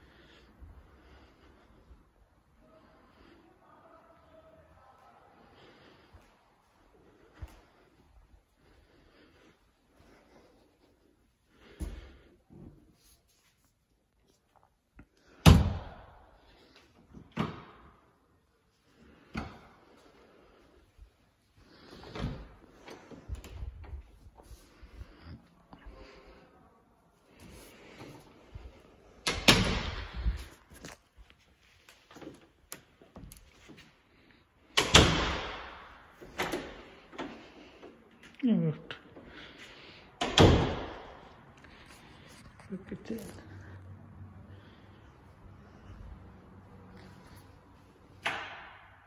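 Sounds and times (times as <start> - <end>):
door banging shut: 40.2 - 41.2.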